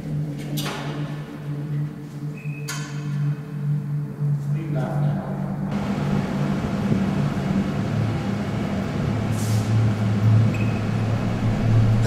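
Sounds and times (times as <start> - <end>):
ventilation blower rushing air: 5.6 - 12.0
short hiss: 9.3 - 9.7.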